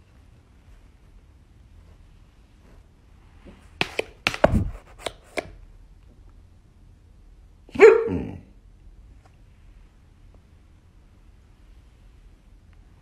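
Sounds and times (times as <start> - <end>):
laptop lid knock: 3.8 - 5.5
dog barking: 7.7 - 8.4.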